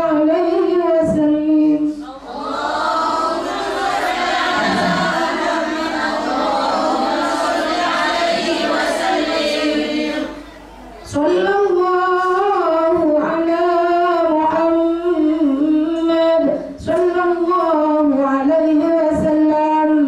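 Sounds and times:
woman singing into a microphone: 0:00.0 - 0:02.3, 0:11.1 - 0:20.0
women singing a chant together: 0:00.0 - 0:20.0.

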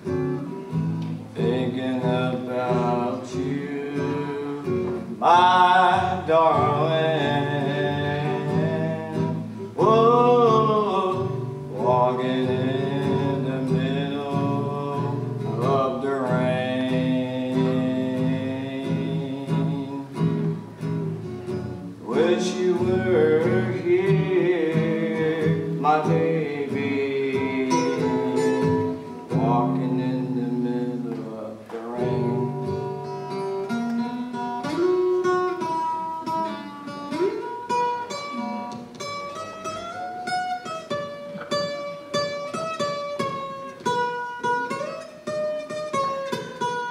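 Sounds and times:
strummed acoustic guitar: 0:00.0 - 0:46.9
man singing: 0:01.2 - 0:20.7, 0:21.8 - 0:33.7.

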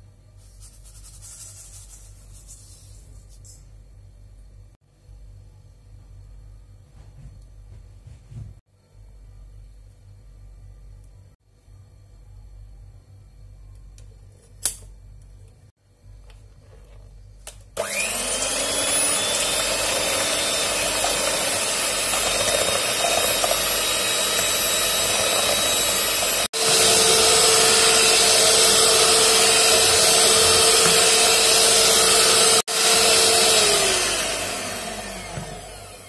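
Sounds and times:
electric hand mixer whining: 0:17.8 - 0:36.0.

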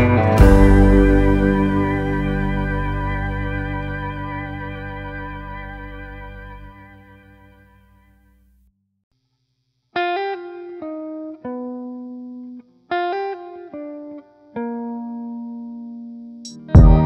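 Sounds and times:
slow melody of ringing notes: 0:00.0 - 0:08.0.

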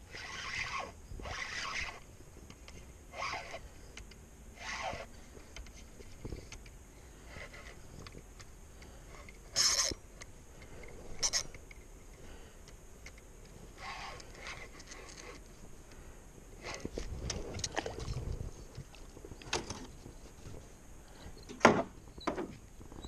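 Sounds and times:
fishing reel cranking: 0:00.1 - 0:02.0, 0:03.1 - 0:03.6, 0:09.5 - 0:10.0, 0:11.2 - 0:11.6.

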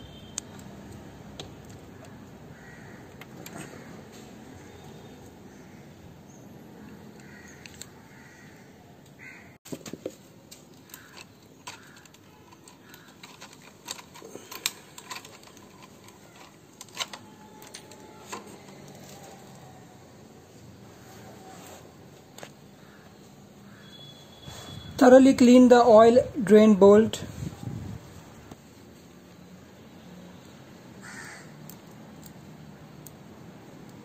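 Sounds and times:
small metal parts clinking: 0:10.6 - 0:19.7.

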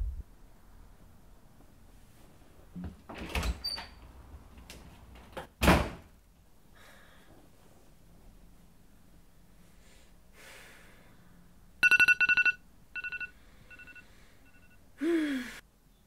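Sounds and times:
phone alarm two-tone beeps: 0:11.8 - 0:14.8.

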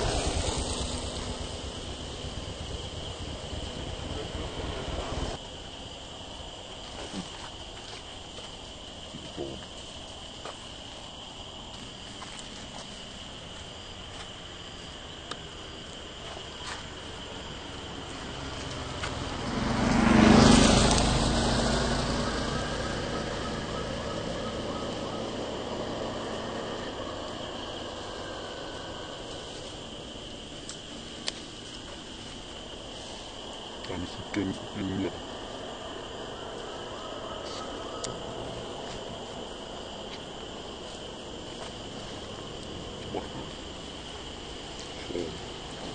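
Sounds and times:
motor vehicle passing: 0:00.0 - 0:05.4, 0:16.9 - 0:30.6
high-pitched insect drone: 0:00.0 - 0:45.9.

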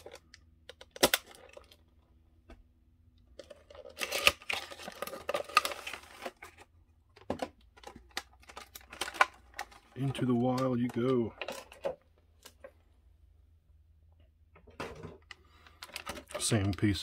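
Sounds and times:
packaging tearing and crinkling: 0:00.0 - 0:01.8, 0:03.4 - 0:06.6, 0:07.8 - 0:11.8
packaging clicking: 0:07.8 - 0:11.8.

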